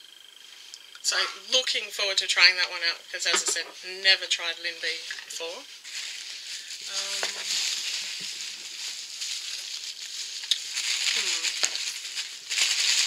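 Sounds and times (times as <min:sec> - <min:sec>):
packing material rustling: 0:05.8 - 0:13.0.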